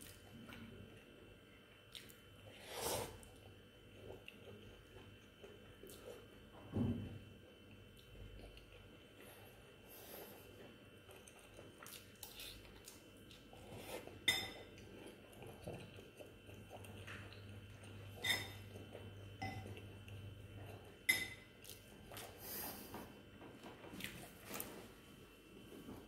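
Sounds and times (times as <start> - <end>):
chewing: 1.8 - 2.2, 3.1 - 6.4, 7.5 - 22.9
spoon clinking against ceramic bowl: 14.2 - 14.7, 18.2 - 18.6, 19.4 - 19.7, 21.1 - 21.4.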